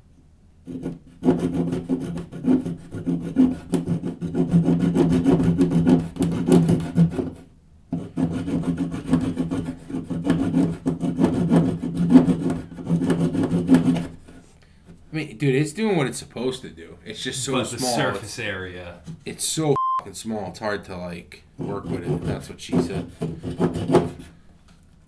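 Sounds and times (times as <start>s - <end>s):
blade rasping into wood: 0.7s - 14.4s, 21.6s - 24.4s.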